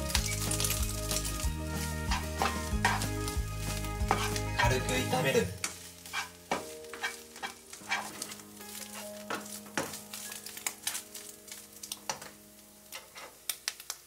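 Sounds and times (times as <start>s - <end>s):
fish sizzling in oil: 0.0s - 14.0s
spatula scraping and tapping pan: 2.0s - 4.9s, 5.6s - 11.3s, 12.9s - 13.5s.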